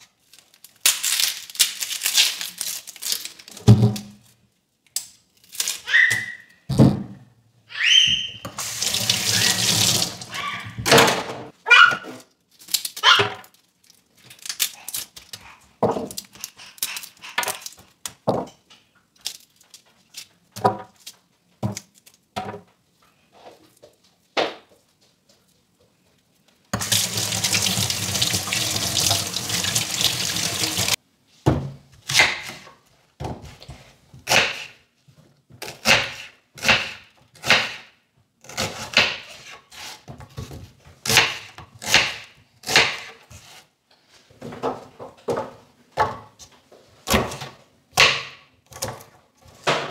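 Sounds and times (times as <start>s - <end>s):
tap water running into sink: 8.6s - 10.3s, 26.8s - 31.0s
knife cutting onion on board: 32.0s - 32.7s, 34.2s - 34.8s, 35.6s - 43.7s.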